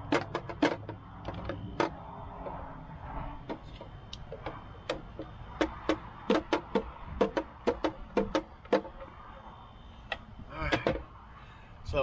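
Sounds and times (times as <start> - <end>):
plastic pipes knocking together: 0.0 - 2.0, 4.4 - 9.0, 10.7 - 11.1.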